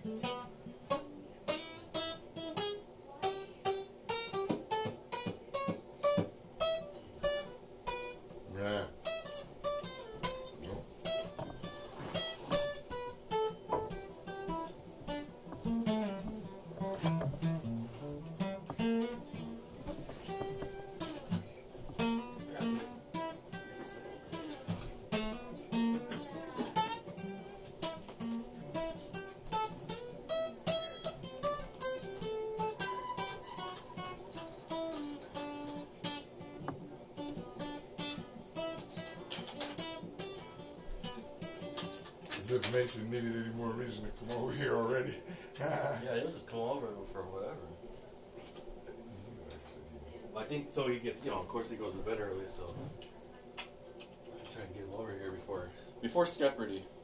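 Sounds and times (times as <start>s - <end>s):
acoustic guitar plucking and strumming: 0.0s - 47.2s.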